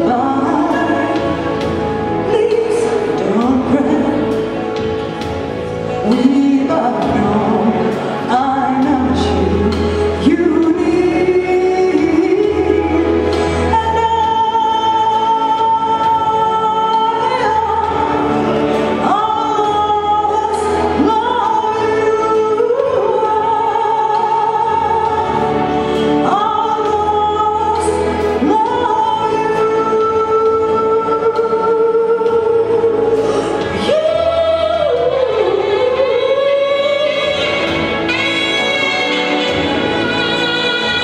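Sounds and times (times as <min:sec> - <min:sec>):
recorded instrumental accompaniment: 0:00.0 - 0:41.0
woman singing pop ballad: 0:00.0 - 0:41.0.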